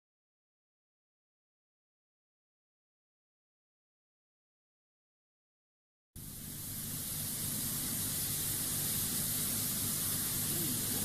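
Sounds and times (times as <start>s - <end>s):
steady hiss: 6.2s - 11.0s.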